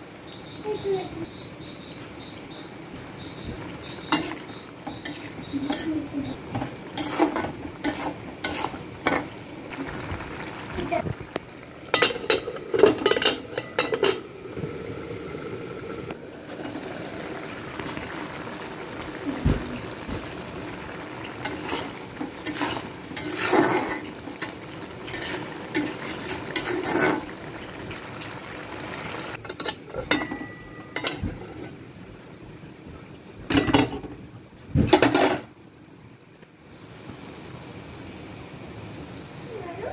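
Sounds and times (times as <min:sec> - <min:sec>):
low sizzle: 0:00.0 - 0:39.9
spatula scraping a pot: 0:04.0 - 0:06.0, 0:06.6 - 0:09.4, 0:21.4 - 0:27.4
metal lid clattering: 0:11.9 - 0:14.3, 0:29.4 - 0:31.6, 0:34.9 - 0:35.5.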